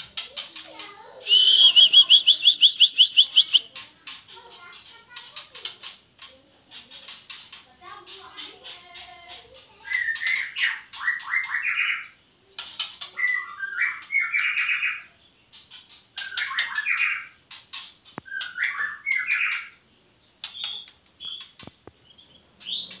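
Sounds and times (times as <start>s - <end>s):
songbird singing: 0.0s - 23.0s.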